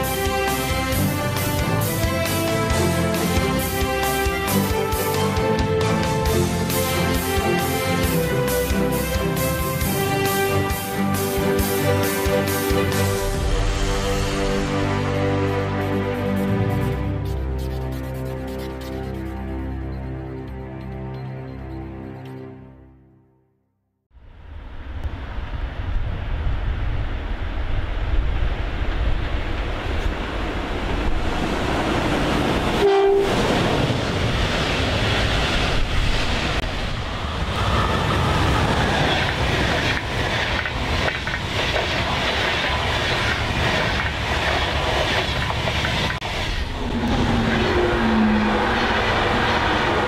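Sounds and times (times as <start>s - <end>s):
train rumble and wheel clatter: 0.0s - 21.7s, 24.3s - 50.0s
rain: 24.2s - 32.3s
train horn tones: 32.8s - 33.8s.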